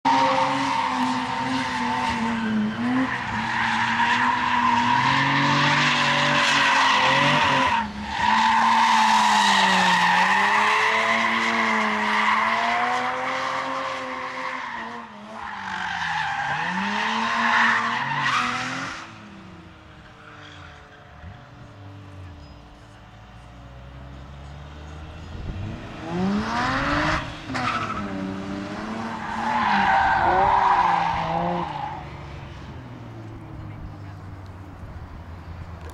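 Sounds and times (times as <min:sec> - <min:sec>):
car engine revving: 0:23.8 - 0:35.9.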